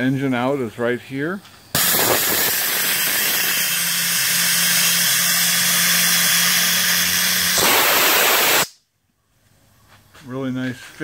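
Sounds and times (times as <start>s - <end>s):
steam hissing from boiler valve: 1.7s - 8.7s.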